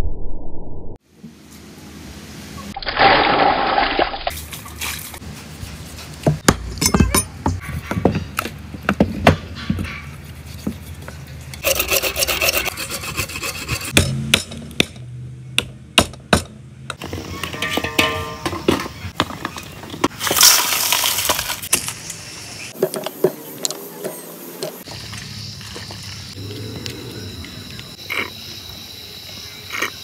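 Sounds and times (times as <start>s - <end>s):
cleaver chopping meat and bone: 13.5s - 16.6s.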